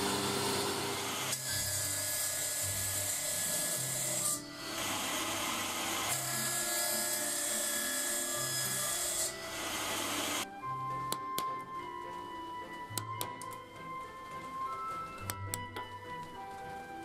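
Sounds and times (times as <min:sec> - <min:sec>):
band saw cutting wood: 0:00.0 - 0:10.4
background music: 0:01.3 - 0:17.0.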